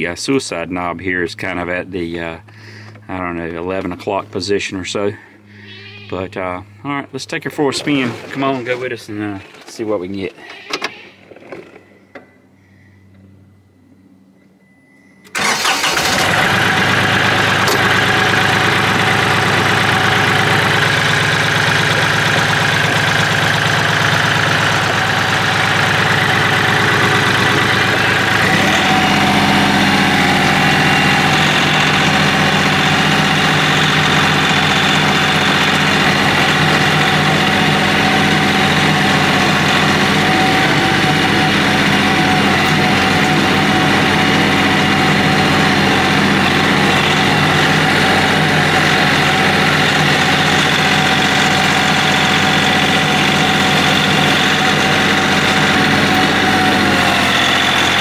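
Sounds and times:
tractor diesel engine running: 0:00.0 - 0:10.4, 0:11.3 - 0:58.0.

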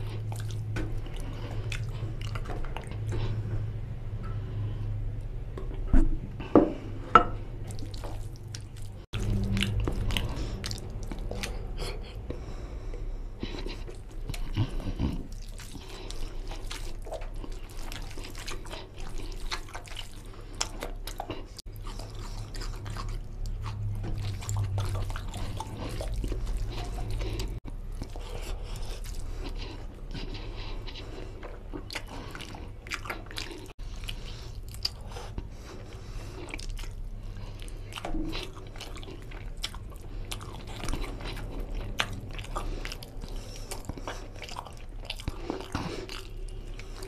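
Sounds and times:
close chewing and mouth smacking: 0:00.0 - 0:03.8, 0:07.6 - 0:47.0.

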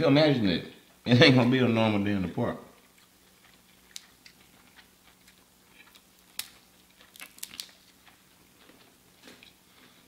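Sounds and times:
faint steady hum: 0:00.0 - 0:10.0
faint chewing and mouth clicks: 0:02.7 - 0:10.0
crisp bites: 0:03.0 - 0:09.6.

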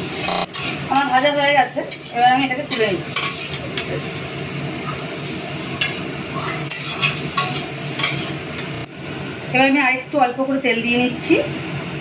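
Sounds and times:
spatula scraping metal pan: 0:00.0 - 0:04.0, 0:06.7 - 0:08.4.

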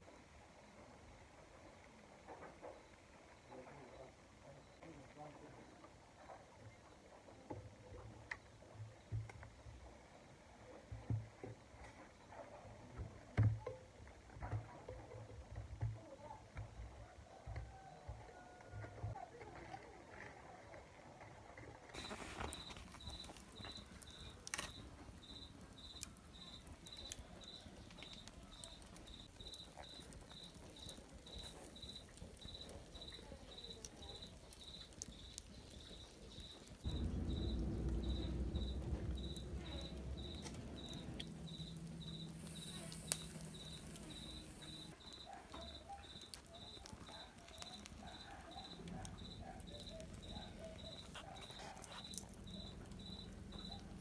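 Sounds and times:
cricket chirping: 0:02.7 - 0:05.8, 0:22.0 - 0:54.0
wood fire crackling: 0:12.8 - 0:54.0
low rumble: 0:36.8 - 0:44.9.

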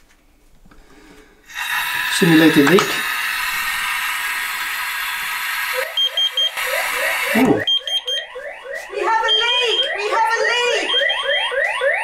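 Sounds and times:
tap water running: 0:01.5 - 0:07.6
short high alarm beeps: 0:05.8 - 0:12.0
rising siren sweeps: 0:06.0 - 0:12.0.

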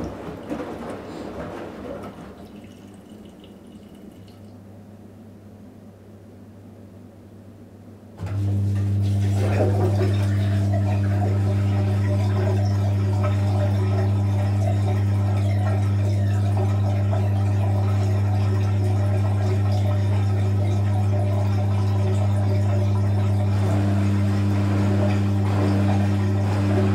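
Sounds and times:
washing machine drain pump hum: 0:00.0 - 0:06.0, 0:08.0 - 0:26.9
water gurgling: 0:02.0 - 0:04.6, 0:09.1 - 0:26.9.

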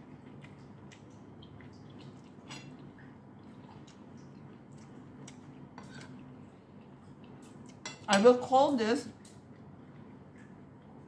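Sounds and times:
person chewing: 0:00.0 - 0:07.8.

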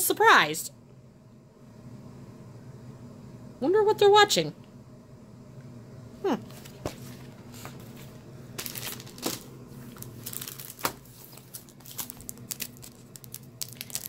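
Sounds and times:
paper pages rustling: 0:06.5 - 0:14.0.

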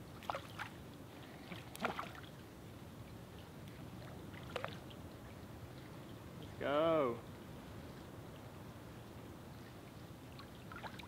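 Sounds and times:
shallow water sloshing: 0:00.1 - 0:02.6, 0:03.3 - 0:06.6, 0:09.8 - 0:11.0
short splashes and clicks: 0:01.4 - 0:02.3, 0:03.6 - 0:05.0, 0:10.4 - 0:11.0.

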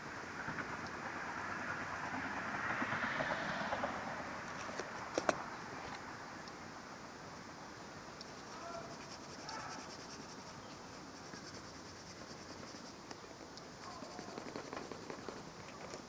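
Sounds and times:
pencil scratching on paper: 0:08.4 - 0:13.1, 0:13.8 - 0:15.4.

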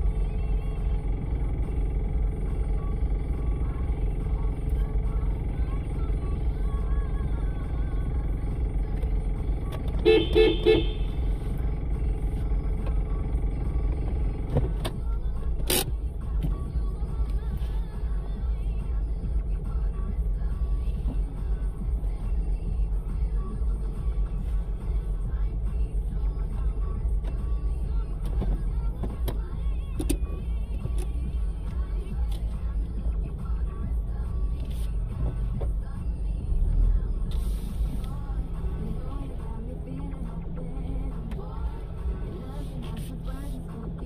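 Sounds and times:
low rumble inside car: 0:00.0 - 0:44.0
car horn toots: 0:09.9 - 0:11.3.

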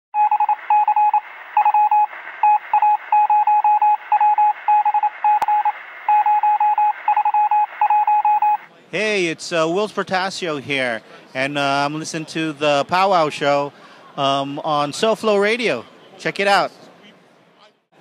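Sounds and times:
rapid electronic beeps: 0:00.2 - 0:08.7
radio-like hiss: 0:01.2 - 0:03.1, 0:04.0 - 0:06.2.

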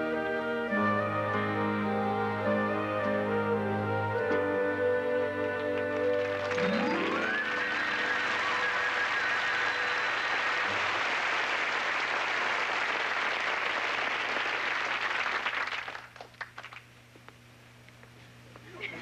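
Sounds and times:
audience applauding: 0:05.6 - 0:16.9.

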